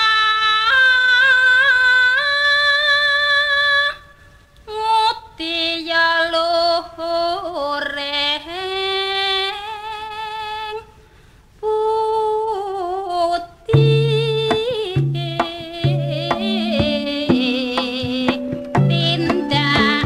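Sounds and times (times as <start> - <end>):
woman singing long wavering notes: 11.6 - 20.0
drum strokes: 13.7 - 20.0
gamelan ensemble: 15.0 - 20.0.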